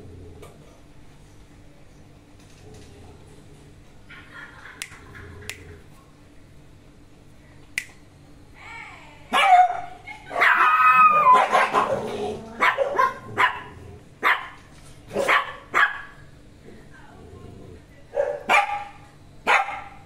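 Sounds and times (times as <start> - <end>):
small dog barking and yapping: 9.3 - 12.0, 12.6 - 16.1, 18.2 - 20.0
dog bark-howl: 9.3 - 14.5.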